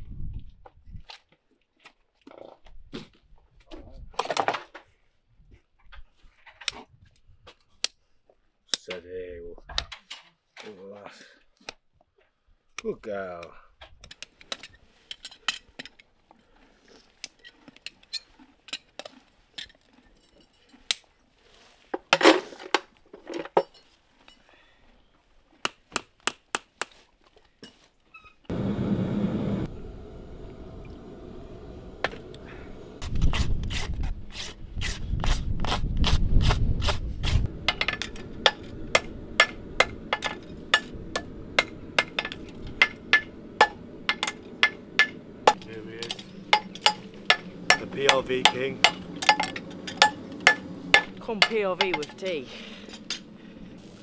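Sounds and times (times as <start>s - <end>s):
steady rushing noise: 28.5s - 33.6s, 37.3s - 53.7s
deep rumble: 28.5s - 33.7s, 36.7s - 51.3s
hammer blows on metal: 37.7s - 52.2s
metal tool taps and clinks: 41.6s - 52.2s.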